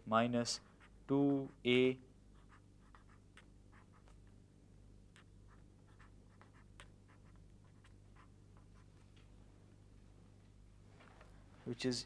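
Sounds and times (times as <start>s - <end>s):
steady low hum: 0.0s - 12.0s
writing scratching on a board: 0.5s - 4.3s, 5.2s - 8.9s.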